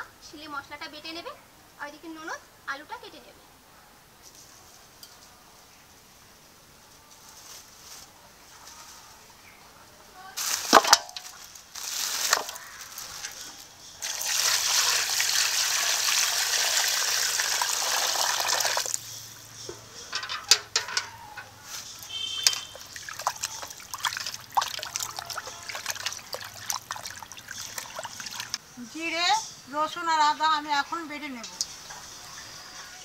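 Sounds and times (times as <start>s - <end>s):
water splashing and sloshing: 10.4s - 13.4s, 21.9s - 28.6s
sharp rustles: 10.4s - 13.7s
water pouring into steel pot: 14.0s - 19.0s, 22.1s - 28.6s.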